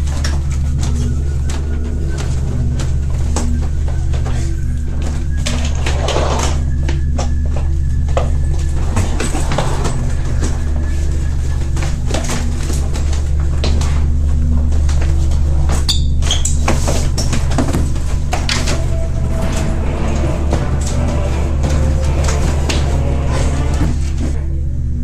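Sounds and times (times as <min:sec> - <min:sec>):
low drone: 0:17.1 - 0:25.0.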